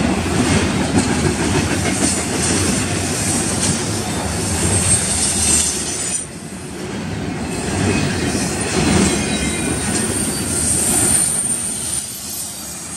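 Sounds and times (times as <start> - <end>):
train wheels rumbling on rails: 0.0 - 12.9
high wheel squeal: 7.5 - 12.9.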